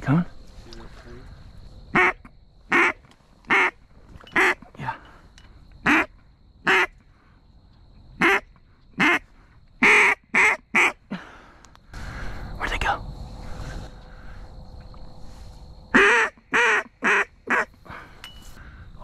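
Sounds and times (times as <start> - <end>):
duck call quacks: 2.0 - 3.8, 4.4 - 4.6, 5.8 - 6.1, 6.7 - 6.9, 8.2 - 9.2, 9.8 - 11.0, 16.0 - 17.7.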